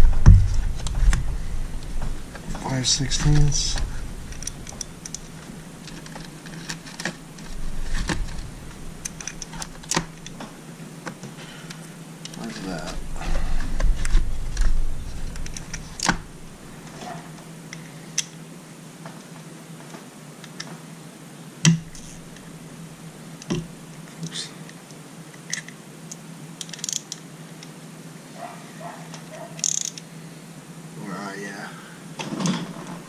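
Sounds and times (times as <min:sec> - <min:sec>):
sharp knocks: 0:00.0 - 0:04.9
faint steady hum: 0:00.0 - 0:33.0
socket wrench clicking: 0:26.6 - 0:27.2, 0:29.6 - 0:30.0.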